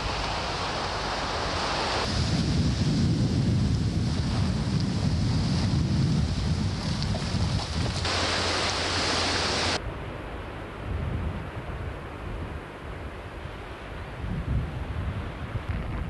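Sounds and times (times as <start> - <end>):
small waves washing onto sand: 0.0 - 9.8
wind buffeting microphone: 0.0 - 9.8, 10.8 - 16.0.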